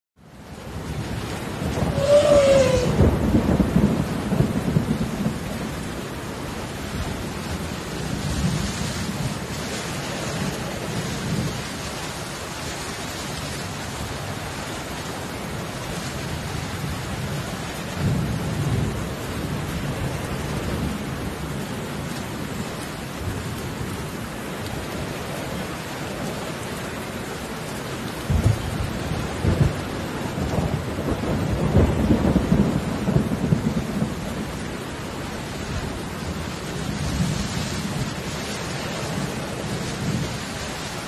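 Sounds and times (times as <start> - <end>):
rain hissing: 0.3 - 41.0
low rumbling: 1.7 - 3.7
short falling cry: 1.8 - 3.1.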